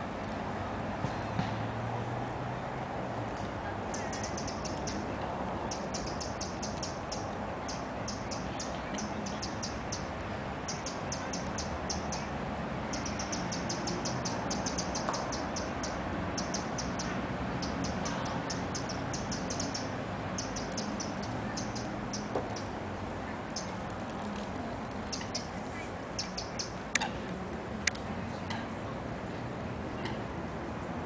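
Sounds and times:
high-pitched chirping: 4.0s - 5.0s, 5.7s - 10.1s, 10.7s - 12.3s, 12.9s - 22.7s, 26.2s - 26.8s.

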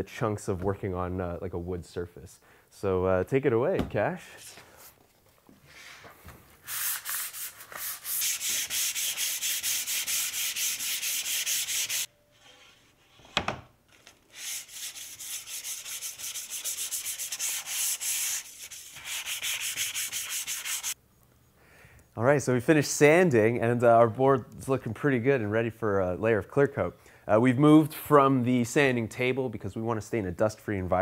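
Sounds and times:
sandpaper rasping on wood: 6.6s - 12.1s, 14.3s - 21.0s.

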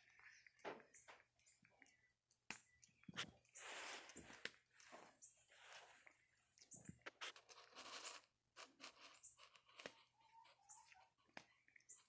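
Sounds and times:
small clicks and crackles: 0.0s - 12.0s.

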